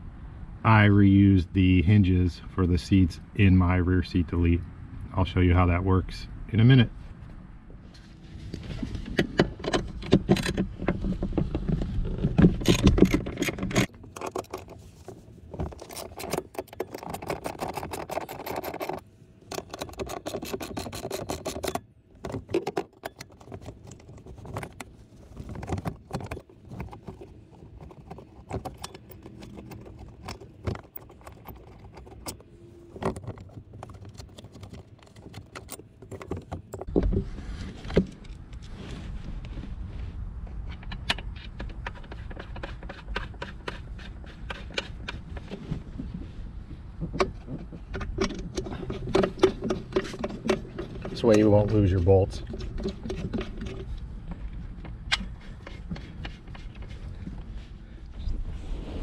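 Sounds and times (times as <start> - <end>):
metal tools and bolts clicking: 12.6 - 14.8, 15.7 - 36.9.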